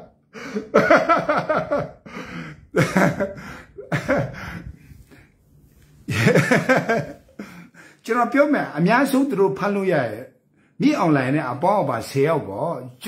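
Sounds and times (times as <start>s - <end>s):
man laughing: 0.0s - 4.9s, 6.1s - 7.8s
man gasping for breath: 2.0s - 5.3s
man talking: 8.0s - 13.0s.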